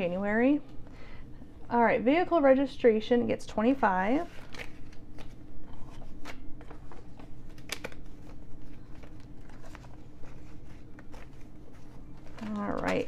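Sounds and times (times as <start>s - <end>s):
banknotes rustling and flicking: 3.8s - 13.0s
crisp paper snaps: 7.5s - 8.1s.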